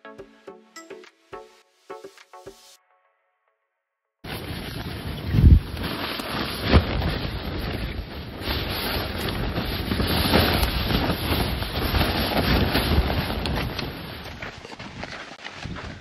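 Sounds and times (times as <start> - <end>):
wind buffeting microphone: 4.3 - 16.0.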